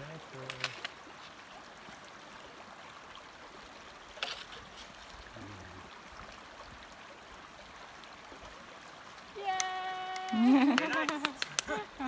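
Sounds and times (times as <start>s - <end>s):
creek trickling over rocks: 0.0s - 12.0s.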